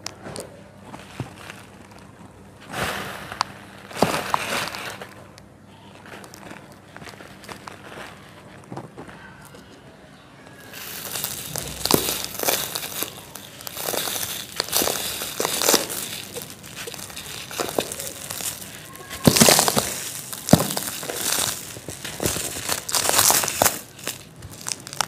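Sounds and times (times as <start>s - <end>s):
sand sifting through fingers: 2.6s - 5.2s, 10.6s - 25.0s
sand crunching in hands: 10.7s - 25.0s.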